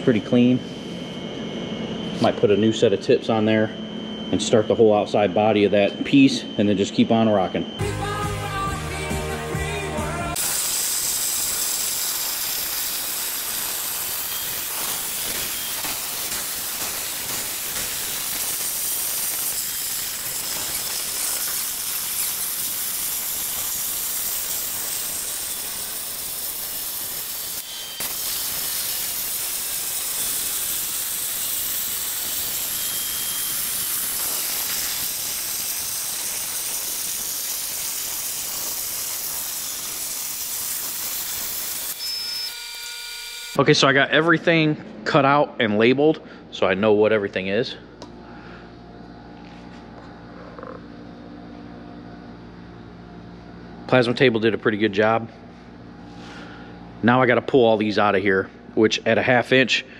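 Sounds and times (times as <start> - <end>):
music: 7.8 - 10.4
plasma cutter hissing: 10.3 - 42.9.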